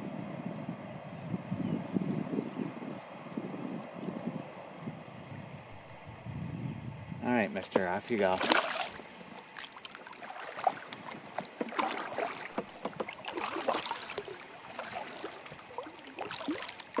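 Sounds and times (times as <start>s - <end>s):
paddle knocking against kayak: 7.6s - 17.0s
paddle splashes and drips: 7.7s - 17.0s.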